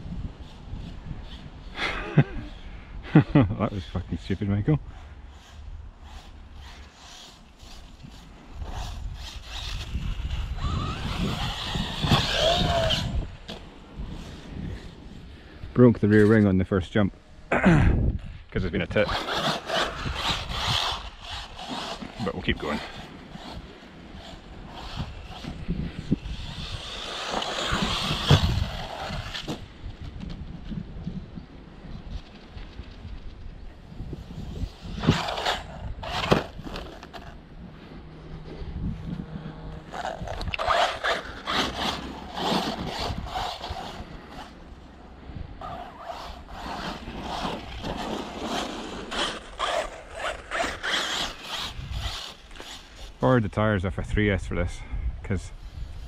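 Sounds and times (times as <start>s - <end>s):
rc car motor whining: 4.9s - 15.3s, 18.9s - 29.6s, 34.1s - 37.4s, 39.4s - 44.9s, 45.6s - 53.2s.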